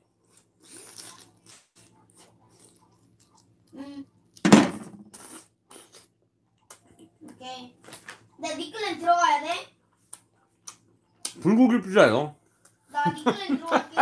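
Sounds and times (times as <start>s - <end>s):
chewing and mouth noises: 0.1s - 3.8s.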